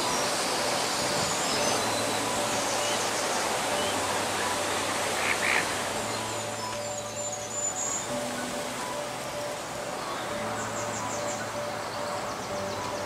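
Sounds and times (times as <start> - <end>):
outdoor hiss: 0.0 - 13.0
waterfowl calling: 3.7 - 6.3.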